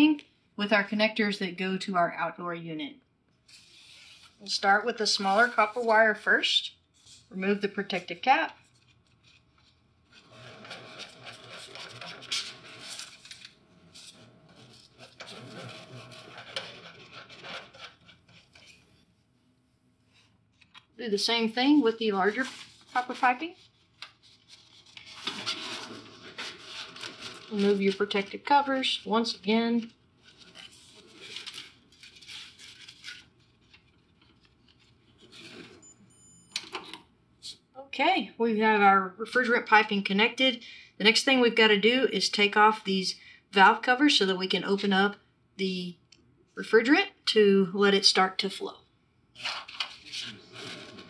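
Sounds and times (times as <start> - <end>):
gloved hands scraping and rubbing: 8.8 - 19.2, 21.6 - 33.5, 49.4 - 51.0.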